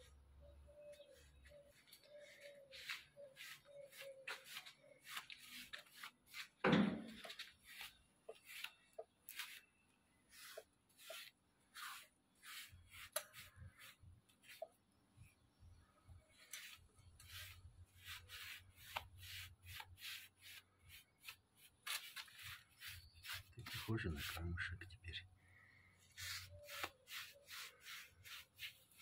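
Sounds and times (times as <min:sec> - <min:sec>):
paintbrush scrubbing concrete: 0:02.4 - 0:09.7, 0:10.3 - 0:14.7, 0:16.4 - 0:24.8, 0:26.2 - 0:29.0
thump: 0:06.6 - 0:07.2.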